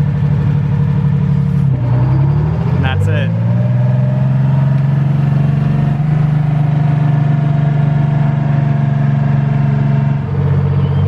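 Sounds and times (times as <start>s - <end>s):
ferry engine running: 0.0s - 11.0s.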